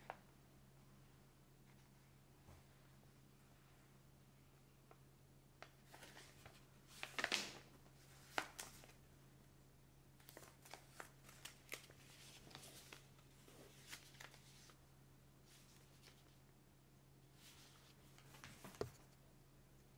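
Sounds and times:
paper rustling and crackling: 5.6s - 9.0s, 10.2s - 14.8s.

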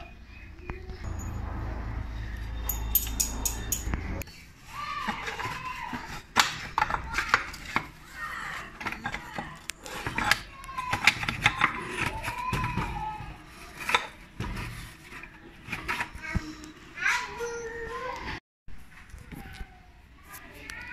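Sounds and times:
tools clicking and knocking on metal: 2.7s - 4.0s.

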